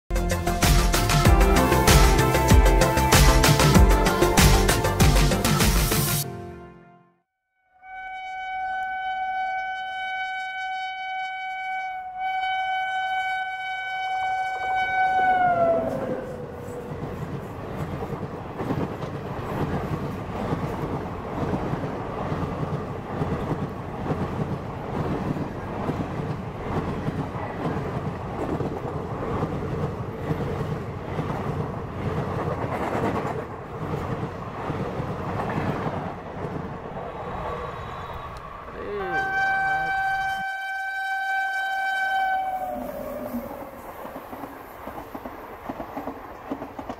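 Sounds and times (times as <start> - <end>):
locomotive horn: 6.2 - 16.8, 38.1 - 43.8
train coaches rumbling past: 14.4 - 46.9.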